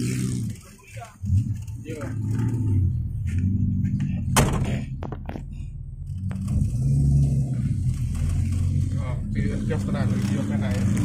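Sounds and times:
engine running at low revs: 0.0s - 11.0s
sharp knocks: 4.3s - 5.4s.

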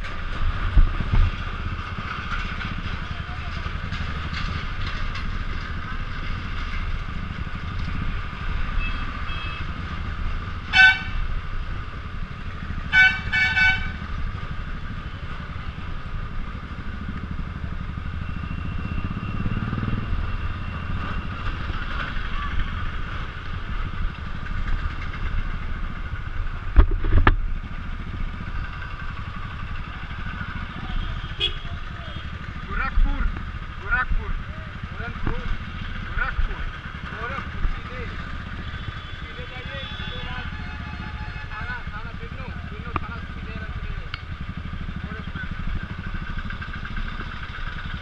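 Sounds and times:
motorcycle engine running: 0.0s - 48.0s
motorcycle horn beeping: 8.8s - 9.7s, 10.7s - 11.2s, 12.9s - 14.1s, 30.8s - 32.4s, 38.8s - 41.8s.

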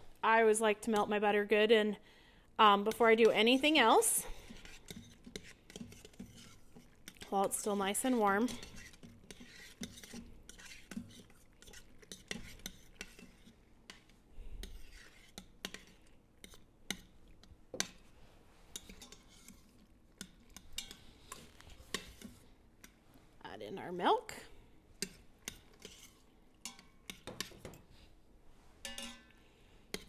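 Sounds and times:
metal spoon clinking and scraping pot: 2.9s - 14.0s, 14.6s - 17.1s, 18.7s - 23.0s, 25.0s - 27.9s, 28.8s - 30.0s.

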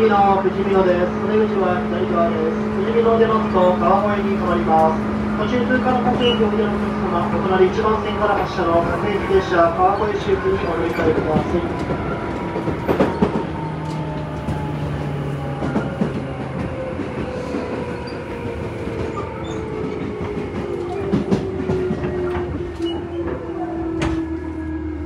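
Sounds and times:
wheels clacking over rail joints: 9.8s - 24.4s.

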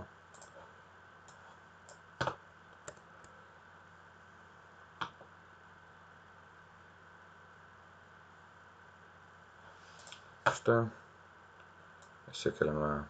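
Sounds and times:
faint steady hum: 0.0s - 13.0s
computer mouse clicks: 0.3s - 0.6s, 1.2s - 3.4s.

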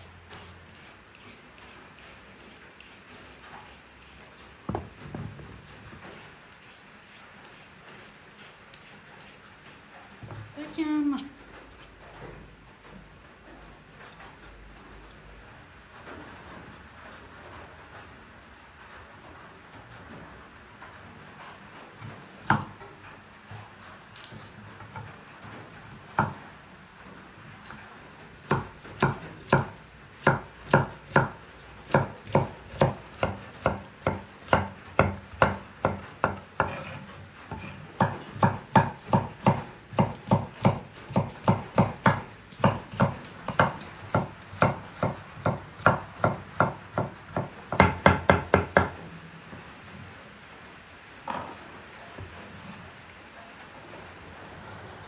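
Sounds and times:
knife chopping on wooden board: 22.4s - 22.7s, 28.5s - 48.9s.

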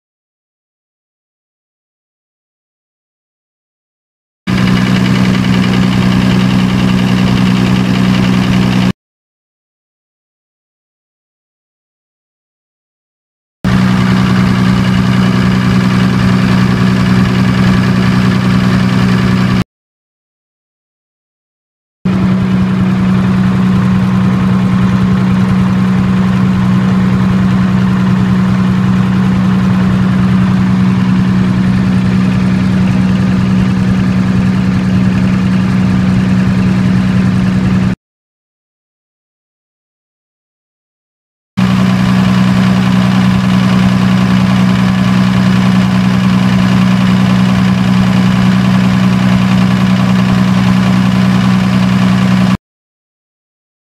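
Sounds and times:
diesel generator running: 4.5s - 9.0s, 13.6s - 19.6s, 22.1s - 38.0s, 41.6s - 52.6s.

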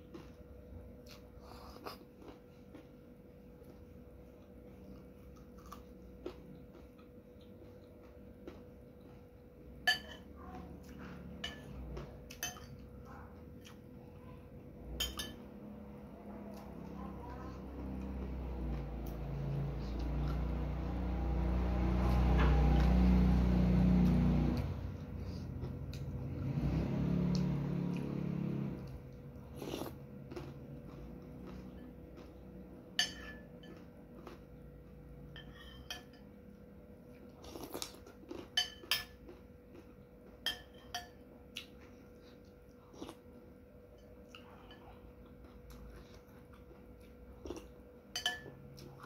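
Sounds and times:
close-up eating sounds: 0.0s - 49.0s
metal spoon clinking on ceramic plate: 9.8s - 10.3s, 15.0s - 15.4s, 33.0s - 33.8s, 35.3s - 36.3s, 40.4s - 41.2s, 48.1s - 48.6s.

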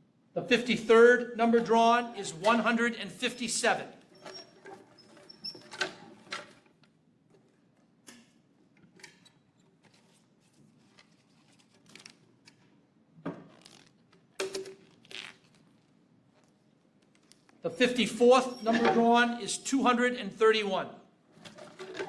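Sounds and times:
paper rustling: 9.8s - 12.3s.

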